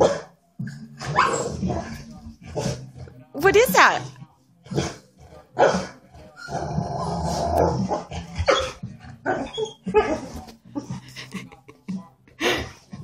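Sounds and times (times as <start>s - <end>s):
dog growling: 0.0s - 3.3s, 4.0s - 11.2s
dog barking: 7.6s - 10.2s.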